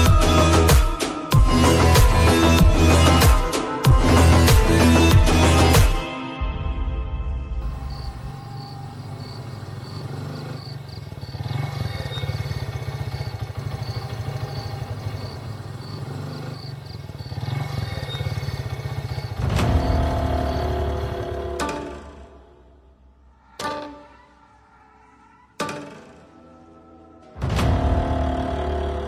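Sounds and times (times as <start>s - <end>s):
motorcycles riding past: 7.9s - 22.4s, 27.4s - 29.0s.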